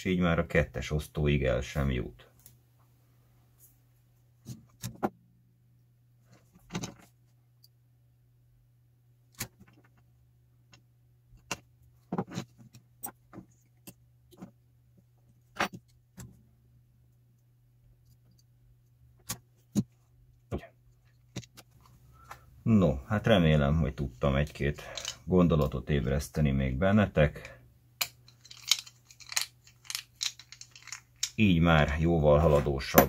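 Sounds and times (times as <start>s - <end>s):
faint low hum: 0.0s - 33.0s
clicks and knocks of handled tools: 24.8s - 25.3s, 28.0s - 31.4s.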